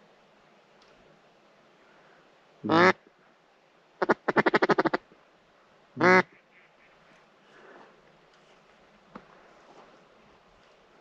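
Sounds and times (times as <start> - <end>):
duck call quacks: 2.6 - 3.0, 4.0 - 5.0, 6.0 - 6.9.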